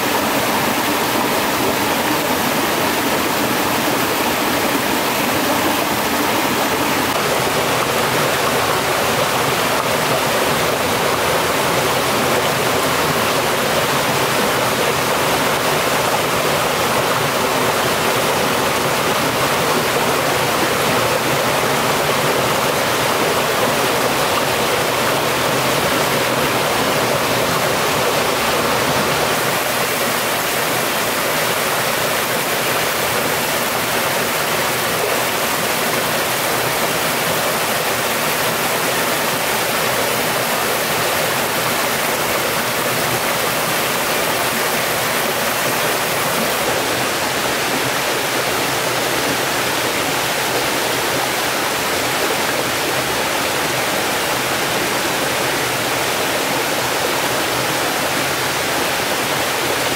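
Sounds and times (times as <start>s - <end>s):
stream rushing over rocks: 0.0s - 59.9s.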